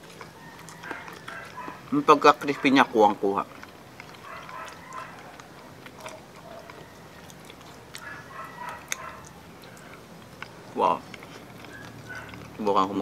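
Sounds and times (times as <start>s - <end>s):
chewing crispy food: 0.0s - 13.0s.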